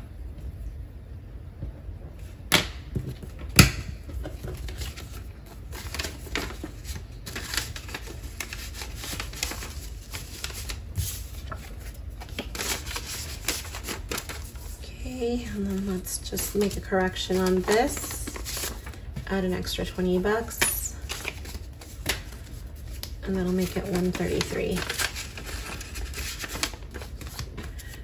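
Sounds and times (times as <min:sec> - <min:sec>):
paper bills rustling: 0:04.3 - 0:28.0.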